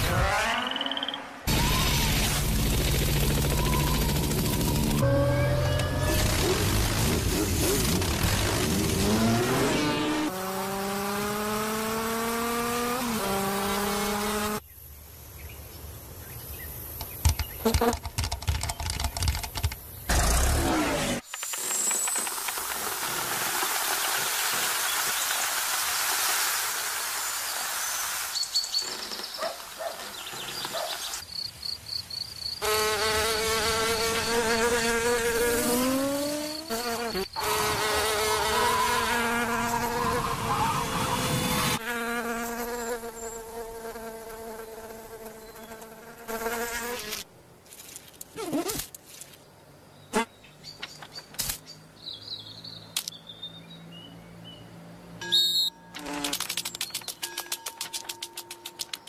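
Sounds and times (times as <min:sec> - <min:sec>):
cartoon insect buzzing: 0:03.6 - 0:14.6, 0:32.6 - 0:47.2.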